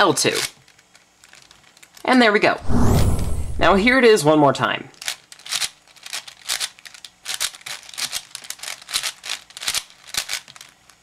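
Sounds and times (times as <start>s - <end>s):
puzzle cube plastic clicks: 0.2s - 2.1s, 4.9s - 11.0s.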